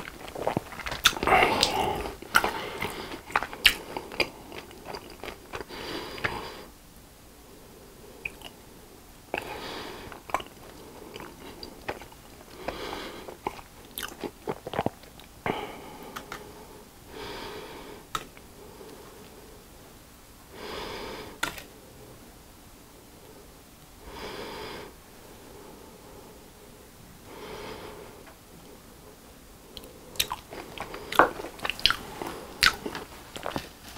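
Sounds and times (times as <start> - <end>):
breathing through the nose: 5.6 - 6.7, 20.6 - 21.5, 27.3 - 28.3.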